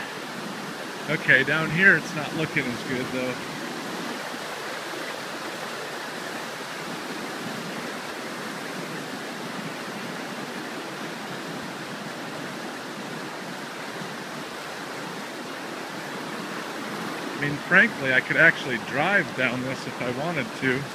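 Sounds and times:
floodwater rushing over road: 0.0s - 20.9s.

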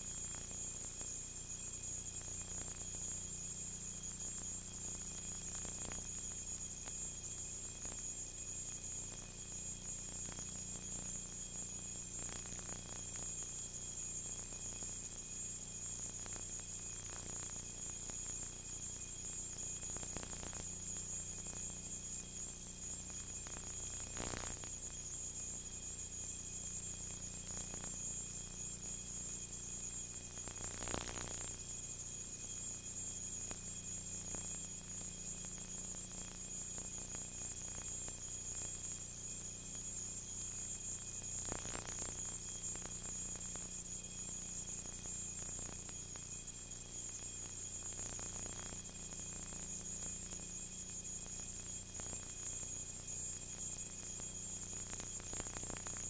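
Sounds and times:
tape hiss: 30.4s - 31.6s.

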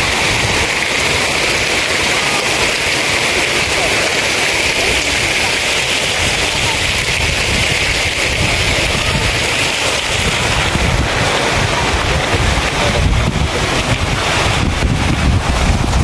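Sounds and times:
fountain water splashing into pool: 0.0s - 16.0s
wind buffeting microphone: 4.6s - 16.0s.

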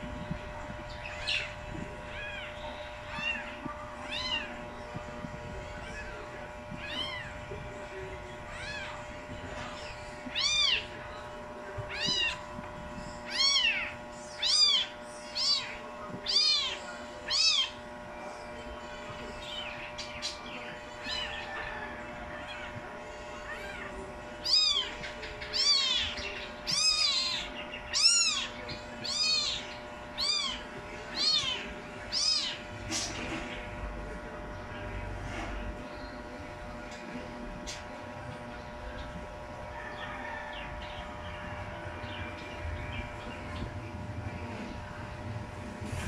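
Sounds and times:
kittens mewing: 1.0s - 18.1s, 20.7s - 33.7s.

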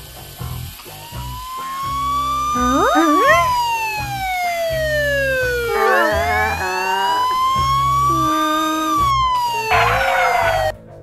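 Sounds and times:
police siren wailing: 0.9s - 10.8s
cartoon music with bass line: 1.0s - 10.8s.

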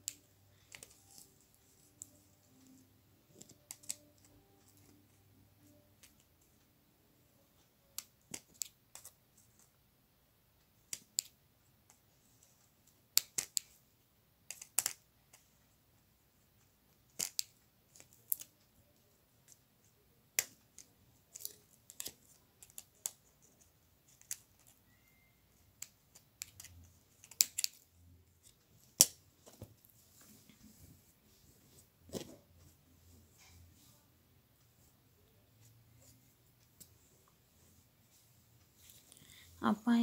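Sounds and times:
scissors snipping thread: 3.4s - 5.0s, 13.1s - 13.7s, 14.5s - 15.0s, 17.1s - 18.6s, 20.3s - 27.8s
fabric rustling: 29.3s - 34.9s.

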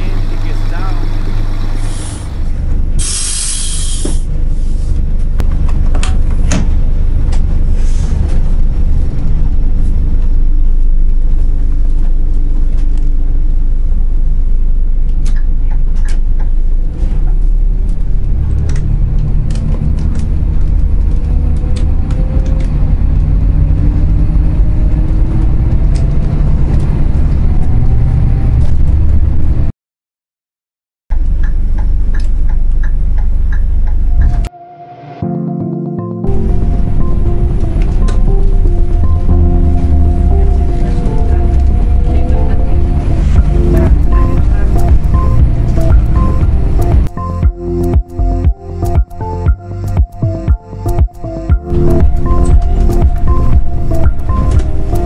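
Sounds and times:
diesel coach engine running: 0.0s - 29.7s, 31.1s - 34.5s, 35.4s - 55.0s
air hiss: 3.0s - 4.3s.

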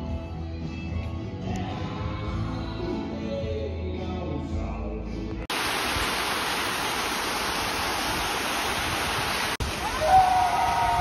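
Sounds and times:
music: 0.0s - 5.5s
waterfall rushing: 5.5s - 11.0s.

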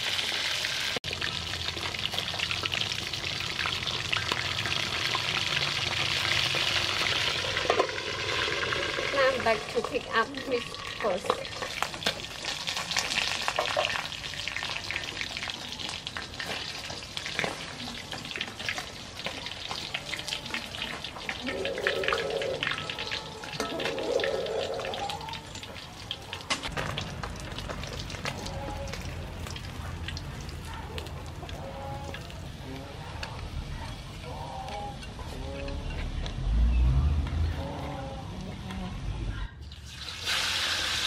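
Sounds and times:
fish frying in hot oil: 0.0s - 32.6s, 39.8s - 41.0s.

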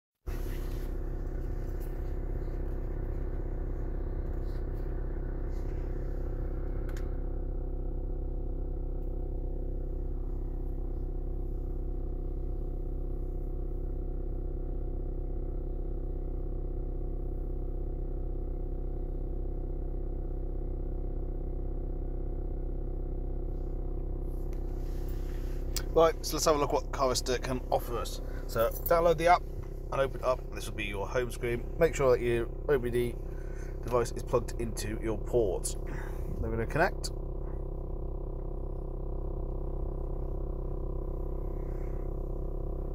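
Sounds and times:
car engine idling: 0.3s - 42.9s.

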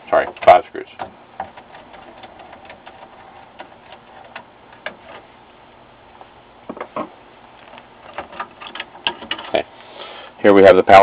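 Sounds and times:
board knocking: 6.7s - 7.1s.

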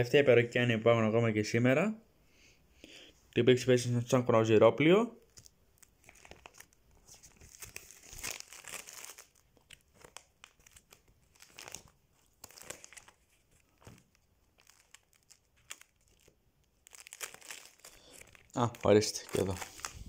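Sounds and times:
plastic sleeves crinkling: 5.2s - 20.0s.

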